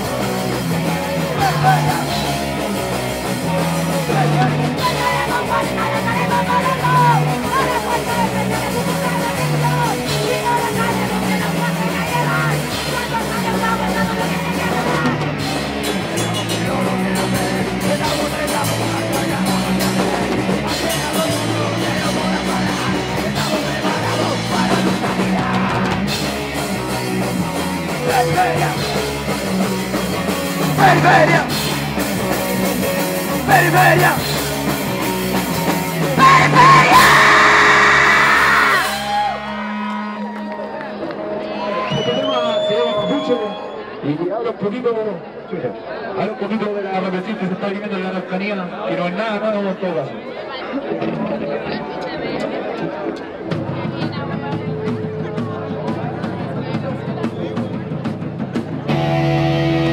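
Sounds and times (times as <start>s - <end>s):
person singing: 0.0s - 2.6s, 3.2s - 15.4s, 16.2s - 29.2s, 30.2s - 31.6s, 36.0s - 39.0s
drum kit: 0.0s - 39.8s, 53.2s - 59.9s
distorted electric guitars: 0.0s - 40.3s, 53.0s - 59.9s
bass guitar: 0.0s - 43.2s, 51.0s - 59.9s.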